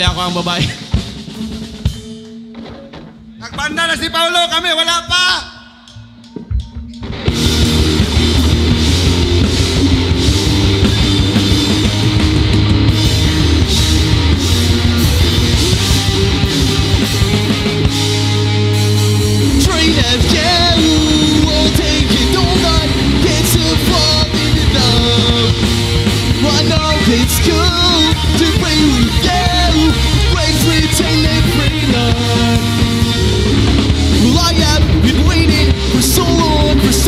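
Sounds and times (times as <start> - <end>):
drums: 0.0 - 37.0
electric guitar: 5.9 - 37.0
bass guitar: 6.0 - 37.0
person singing: 19.4 - 37.0.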